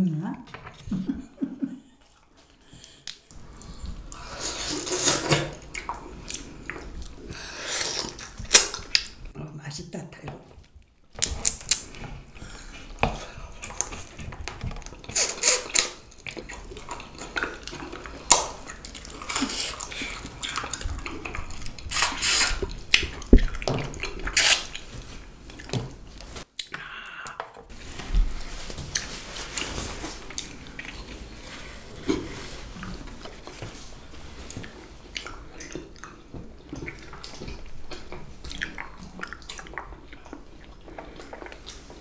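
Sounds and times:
wet chewing and biting: 0:10.8 - 0:26.8, 0:34.4 - 0:42.0.

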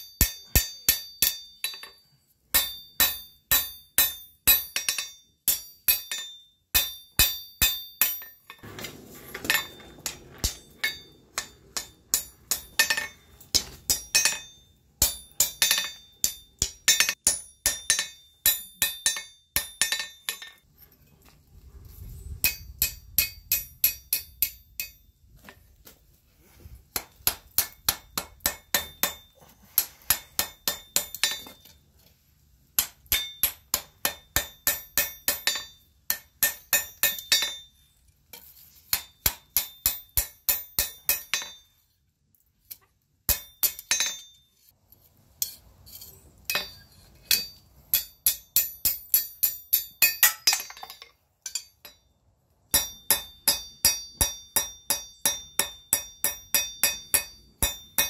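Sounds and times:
hammer ringing on anvil: 0:00.0 - 0:08.6, 0:10.4 - 0:20.6, 0:32.8 - 0:37.8, 0:43.3 - 0:44.4, 0:46.5 - 0:52.1, 0:52.7 - 0:58.0.

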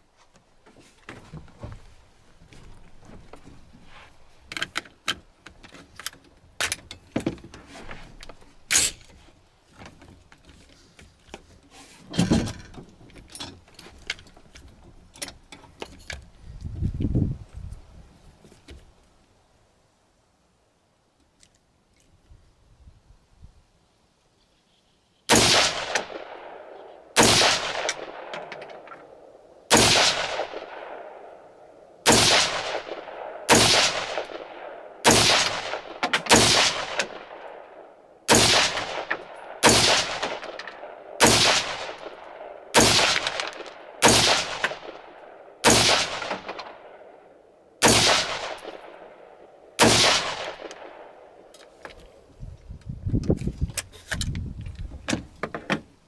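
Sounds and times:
rifle single shots echoing: 0:25.3 - 0:51.5.

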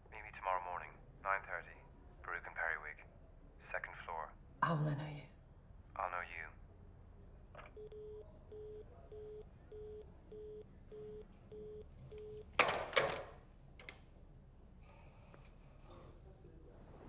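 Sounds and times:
telephone busy tone beeps: 0:07.8 - 0:12.5
handset clattering on cradle: 0:12.6 - 0:13.9.

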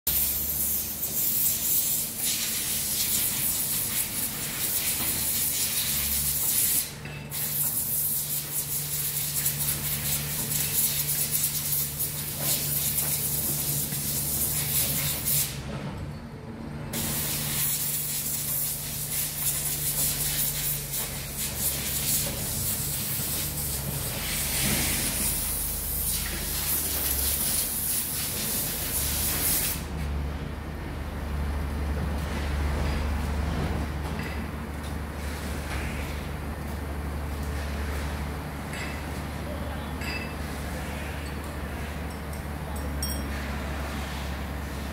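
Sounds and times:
loud steady hiss: 0:17.0 - 0:29.9.

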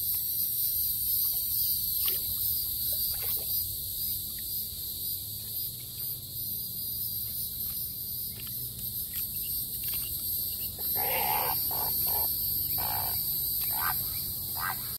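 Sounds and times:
insects droning: 0:00.0 - 0:14.9
harsh animal calls: 0:10.7 - 0:14.9.

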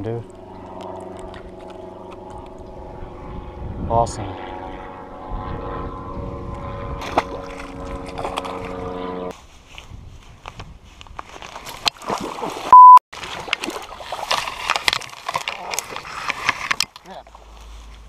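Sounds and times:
engine drone: 0:00.0 - 0:09.3
fish splashing into water: 0:07.0 - 0:08.7, 0:11.7 - 0:16.1
reeds rustling against camera: 0:09.3 - 0:12.0, 0:13.3 - 0:18.0
loud censor bleep: 0:12.7 - 0:13.0.

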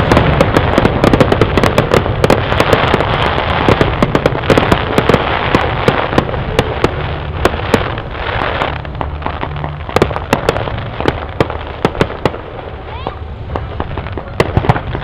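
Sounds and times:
fireworks bangs: 0:00.0 - 0:15.0
fireworks crackling: 0:00.0 - 0:15.0.

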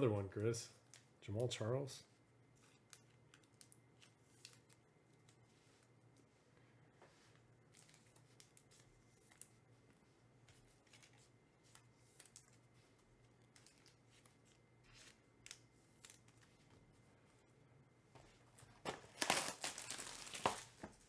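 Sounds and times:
low steady hum: 0:00.0 - 0:21.0
trading cards rustling: 0:02.5 - 0:06.3, 0:07.4 - 0:17.0, 0:18.5 - 0:21.0.

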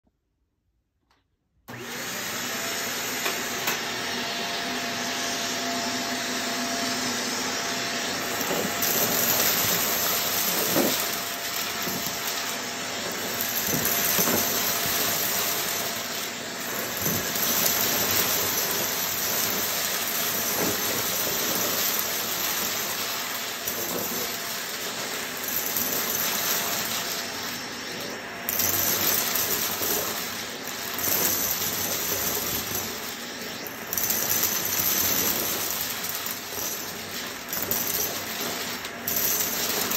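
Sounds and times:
vacuum cleaner running over carpet: 0:01.7 - 0:39.9
debris crackling in vacuum: 0:08.1 - 0:39.9.

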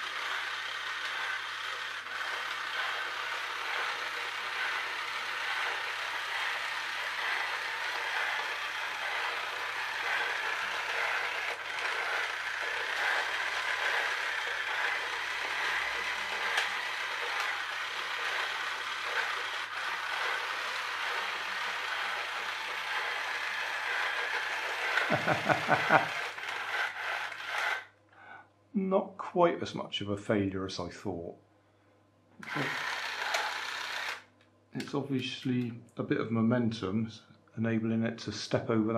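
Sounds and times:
rapid pulses: 0:00.0 - 0:27.8
toy train motor whirring: 0:00.0 - 0:27.9, 0:32.4 - 0:34.3.

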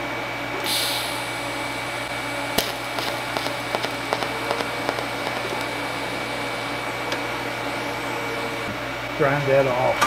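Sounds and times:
welding arc buzz and hiss: 0:00.5 - 0:09.1
sharp welding crack: 0:02.5 - 0:07.4
small crackles and ticks: 0:02.6 - 0:05.8.

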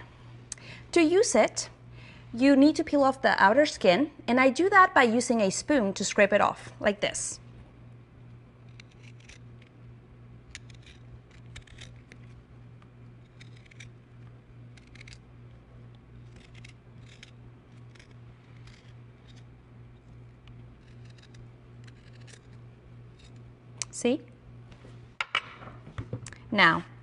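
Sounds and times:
low steady hum: 0:00.0 - 0:27.0
spoon scraping ginger skin: 0:08.6 - 0:09.7, 0:10.5 - 0:12.4, 0:13.1 - 0:15.3, 0:16.0 - 0:23.4.

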